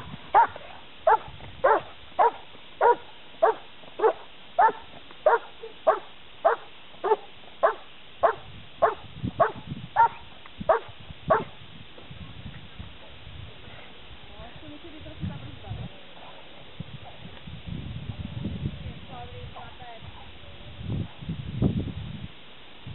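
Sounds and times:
dog barking: 0:00.4 - 0:11.5.

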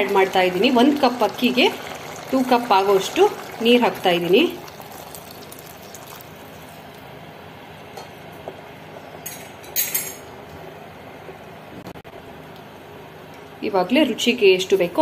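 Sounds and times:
water pouring into a pot: 0:00.0 - 0:06.9.

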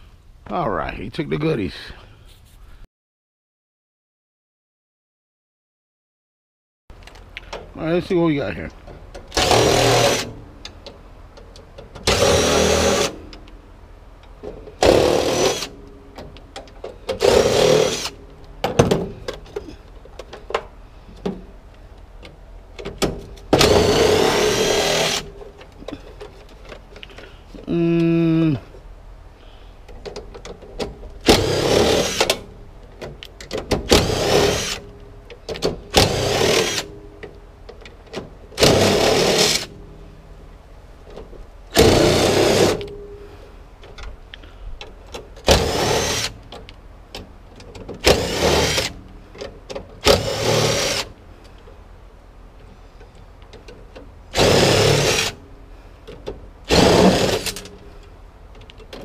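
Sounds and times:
handheld power tool bursts: 0:09.3 - 0:10.4, 0:12.0 - 0:13.2, 0:14.8 - 0:15.8, 0:17.1 - 0:18.2, 0:23.5 - 0:25.3, 0:31.2 - 0:32.4, 0:33.8 - 0:34.9, 0:35.9 - 0:36.9, 0:38.6 - 0:39.7, 0:41.8 - 0:43.0, 0:45.4 - 0:46.4, 0:48.0 - 0:49.0, 0:50.0 - 0:51.2, 0:54.3 - 0:55.4, 0:56.6 - 0:57.7.

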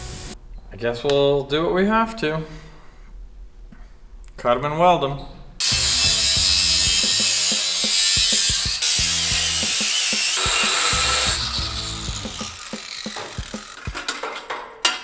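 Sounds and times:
angle grinder cutting steel: 0:05.6 - 0:14.0
metal pieces knocking and clicking: 0:12.8 - 0:15.0.

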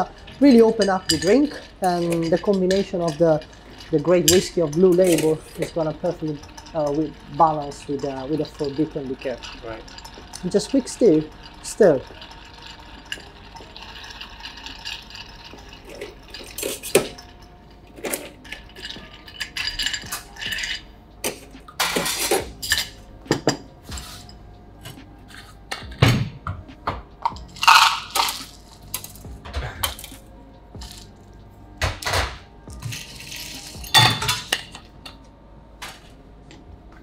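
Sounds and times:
bar spoon stirring ice in glass: 0:00.0 - 0:24.4, 0:27.3 - 0:29.3, 0:32.8 - 0:34.9
metal bar tools and glass clinking: 0:00.0 - 0:26.6, 0:27.2 - 0:35.3.

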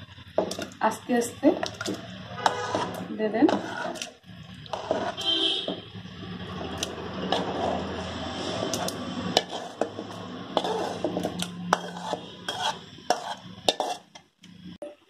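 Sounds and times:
metal spatula scraping pan: 0:00.0 - 0:14.2.

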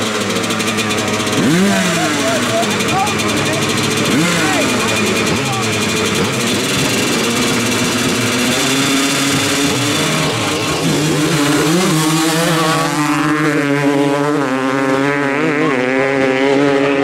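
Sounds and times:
dirt bikes revving hard: 0:00.0 - 0:17.0.

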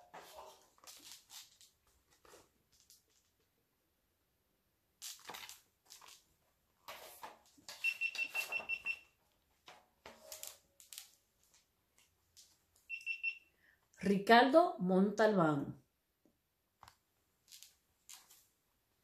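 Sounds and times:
book pages rustling: 0:00.1 - 0:03.4, 0:05.0 - 0:08.7, 0:17.4 - 0:18.6.

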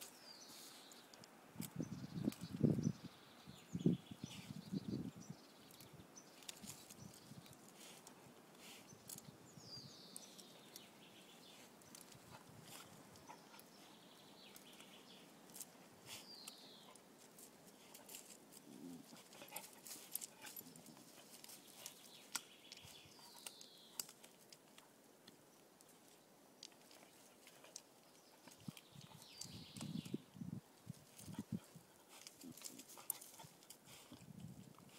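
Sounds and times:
vine stems snapping and rustling: 0:05.8 - 0:09.2, 0:14.5 - 0:30.2, 0:32.1 - 0:34.9.

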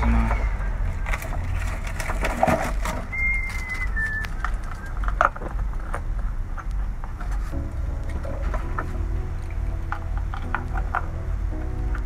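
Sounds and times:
low rumble: 0:00.0 - 0:12.0
short high whistle-like tones: 0:03.0 - 0:05.0.

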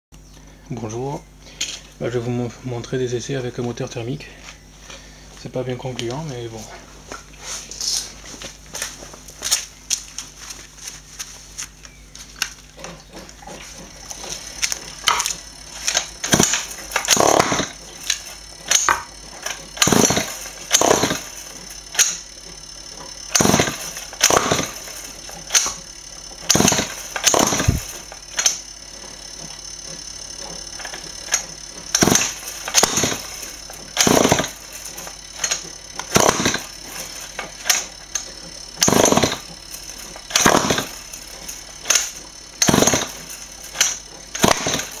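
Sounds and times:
engine pull-start cranking: 0:12.5 - 0:45.0.

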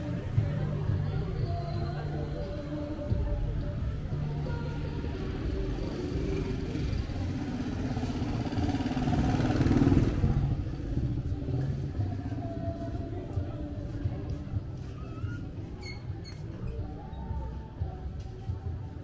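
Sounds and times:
street rumble: 0:00.0 - 0:19.0
vehicle engine passing: 0:04.7 - 0:11.8.

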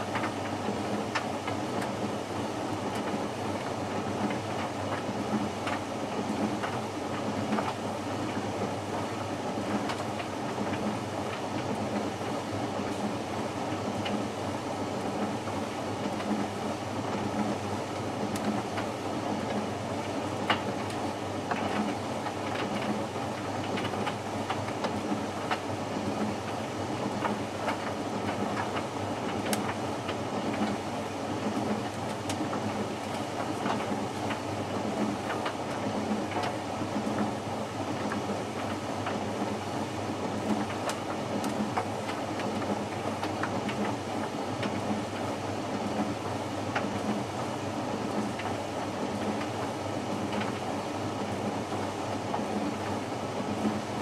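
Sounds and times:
light clicks of tumbling load: 0:16.1 - 0:30.8, 0:38.0 - 0:54.0.

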